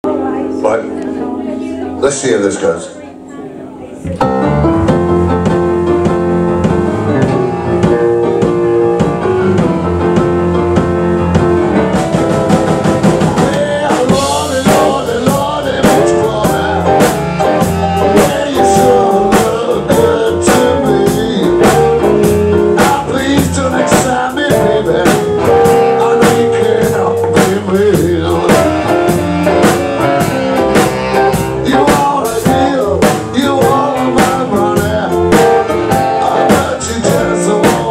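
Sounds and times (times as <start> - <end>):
live band playing: 0.0 - 37.9
drum kit: 4.1 - 37.9
saxophone: 13.0 - 37.9.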